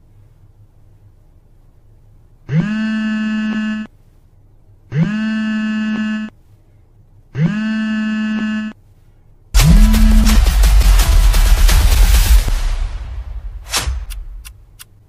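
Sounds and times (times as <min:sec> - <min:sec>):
electronic buzzer tone: 0:02.5 - 0:03.9, 0:04.9 - 0:06.4, 0:07.4 - 0:08.8, 0:09.6 - 0:10.4.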